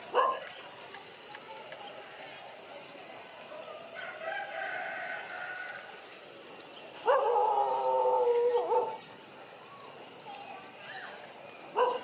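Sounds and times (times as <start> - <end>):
dog whining howls: 7.1 - 9.0.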